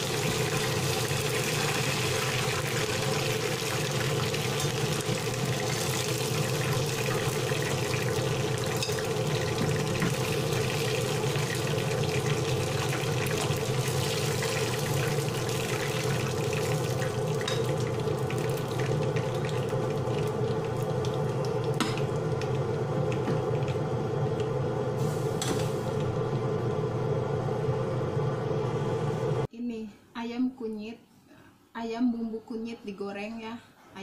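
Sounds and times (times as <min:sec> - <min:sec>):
chicken sizzling in hot oil: 0:00.0 - 0:24.3.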